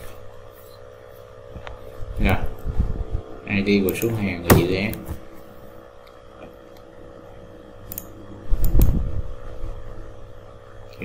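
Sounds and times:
mechanical fan humming: 0.0s - 11.0s
dull low thump: 4.5s - 5.2s.

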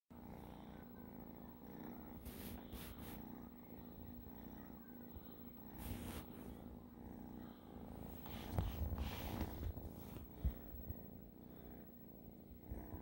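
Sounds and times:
kitten purring: 0.1s - 13.0s
rustling: 8.0s - 11.0s.

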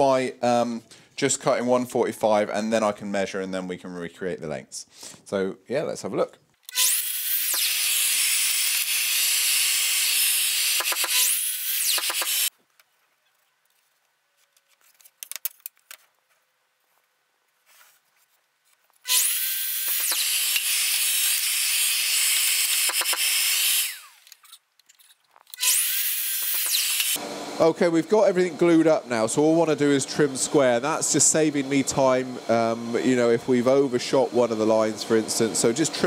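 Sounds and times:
mitre saw cutting wood: 6.7s - 12.5s, 19.0s - 24.4s, 25.5s - 36.0s.

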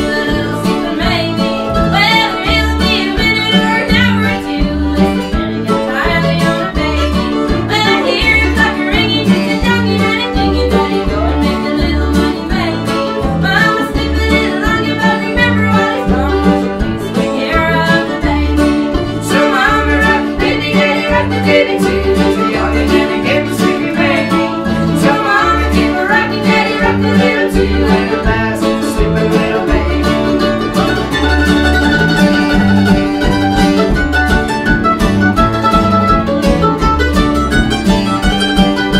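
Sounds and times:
woman singing: 0.0s - 30.6s
bluegrass string band playing: 0.0s - 38.9s
upright bass: 0.0s - 38.9s.

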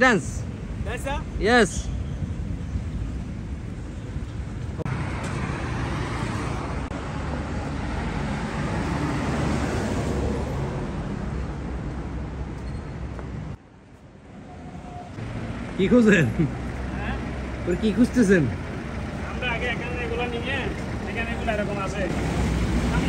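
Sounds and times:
passing cars rushing: 4.7s - 13.6s, 14.7s - 23.0s.

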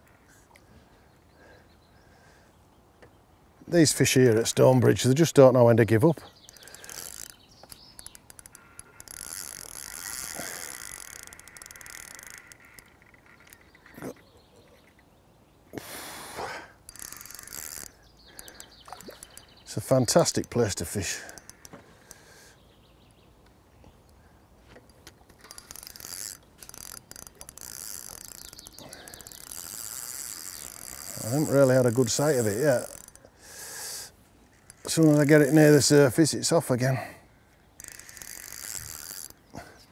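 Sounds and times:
fishing reel clutch clicking: 6.3s - 14.2s, 16.7s - 22.3s, 24.8s - 36.2s, 37.5s - 39.6s.

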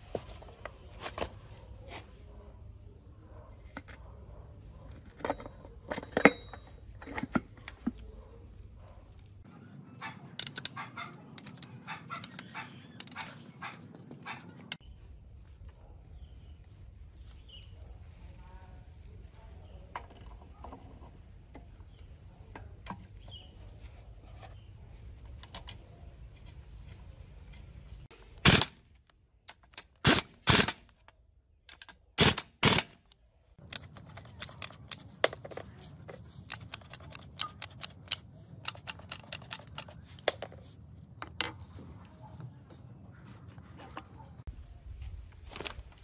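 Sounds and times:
pneumatic impact wrench bursts: 28.4s - 28.7s, 30.0s - 30.8s, 32.2s - 32.9s.

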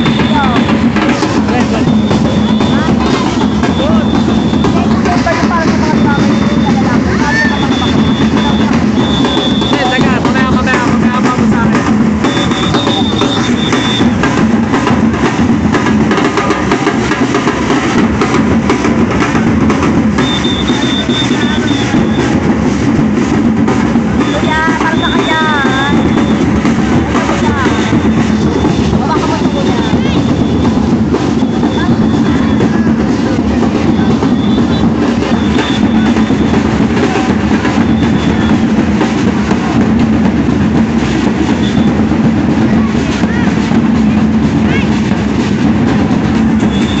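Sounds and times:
high held tone: 0.0s - 14.8s, 20.1s - 22.5s, 24.1s - 38.8s
snare and bass drums: 0.0s - 47.0s
high whistle-like tones: 1.8s - 4.9s, 5.9s - 10.1s, 12.2s - 14.2s, 20.2s - 22.4s, 33.9s - 36.6s, 41.6s - 42.0s, 46.6s - 47.0s.

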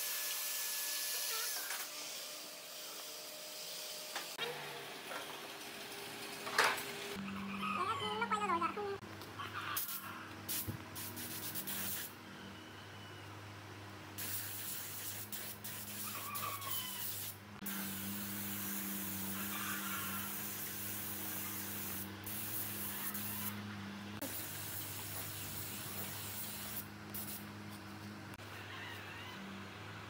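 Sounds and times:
spray gun hissing: 14.2s - 16.0s, 20.2s - 23.5s, 24.2s - 27.4s.

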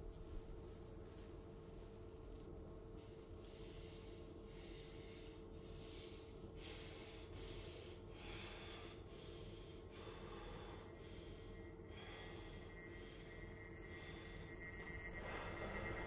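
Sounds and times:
steady low hum: 0.0s - 16.0s
man breathing raggedly: 3.4s - 16.0s.

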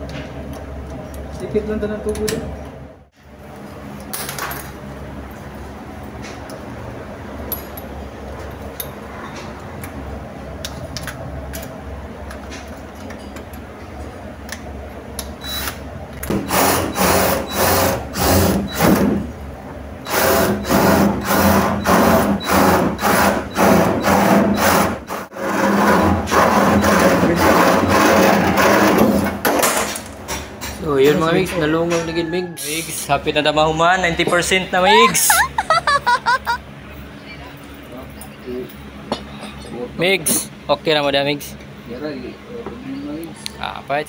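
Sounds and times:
cordless drill bursts: 15.4s - 19.0s, 20.0s - 24.9s.

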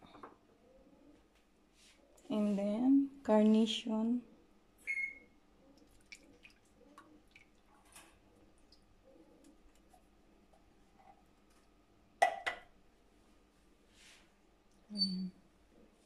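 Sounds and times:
small drips and ticks: 5.7s - 10.1s.

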